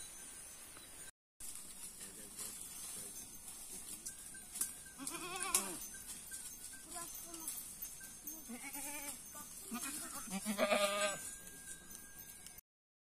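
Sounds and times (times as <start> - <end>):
goats bleating: 5.0 - 5.8, 8.4 - 11.2.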